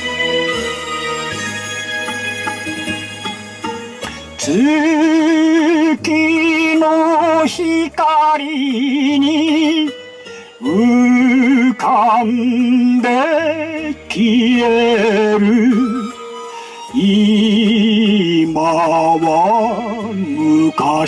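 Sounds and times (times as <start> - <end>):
karaoke backing track: 0.0 - 21.0
man singing with vibrato: 4.4 - 21.0.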